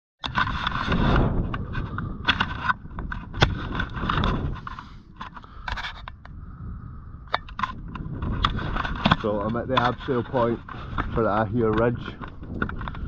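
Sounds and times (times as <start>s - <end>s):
scrapes and clicks: 0.2s - 6.4s, 7.3s - 13.0s
wind buffeting microphone: 0.2s - 13.0s.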